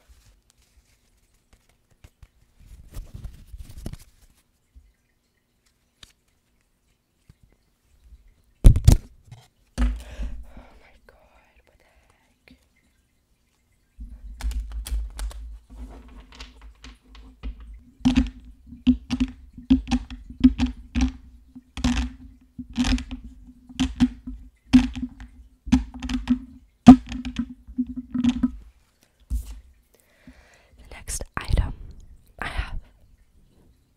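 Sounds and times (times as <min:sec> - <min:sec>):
fingers tapping on hard object: 0:16.3 - 0:28.6.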